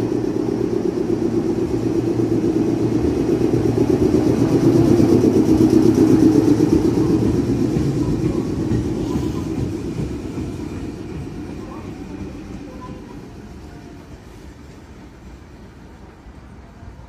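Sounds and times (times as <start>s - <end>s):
electric train pulling away: 0.0s - 17.0s.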